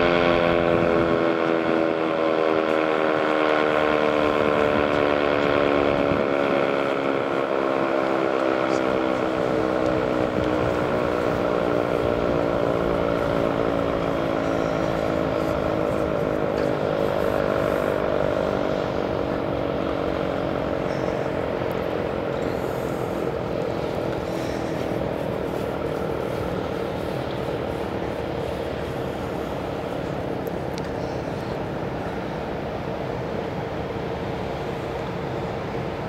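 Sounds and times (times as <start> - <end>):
warning siren chord-like tone: 0.0 - 28.4.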